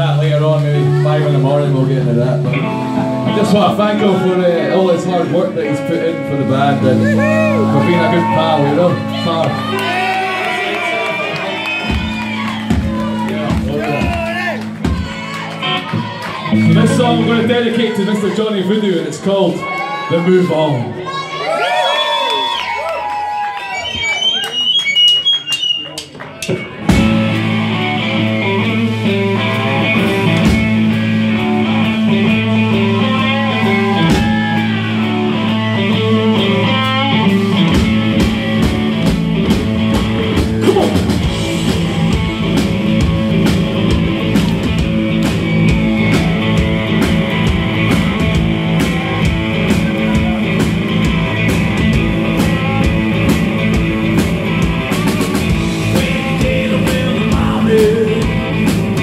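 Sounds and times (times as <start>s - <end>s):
electric guitar: 0.0s - 18.4s, 22.3s - 59.0s
bass guitar: 0.0s - 21.8s, 22.5s - 59.0s
drum kit: 6.6s - 17.5s, 25.5s - 59.0s.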